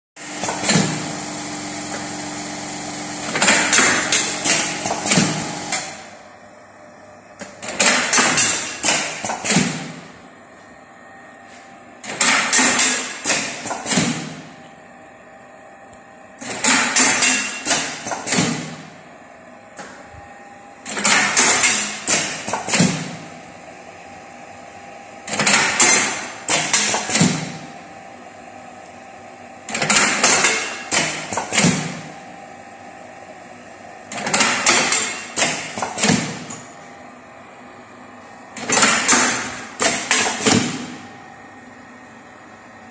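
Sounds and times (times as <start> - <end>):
machine humming: 0.2 - 17.0.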